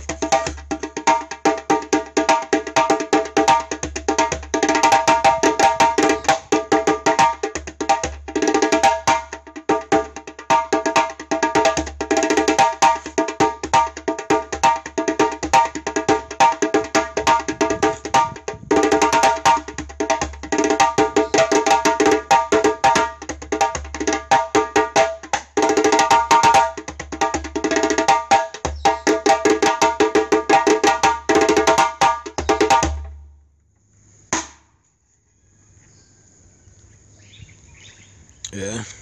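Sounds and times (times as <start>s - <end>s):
djembe slaps and tones: 0.0s - 33.2s, 34.3s - 34.7s.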